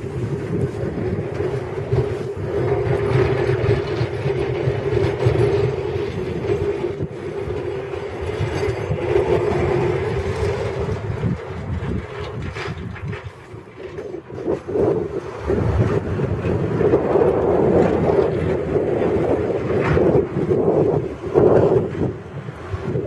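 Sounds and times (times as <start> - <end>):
plow blades scraping over snow: 0.0 - 23.0.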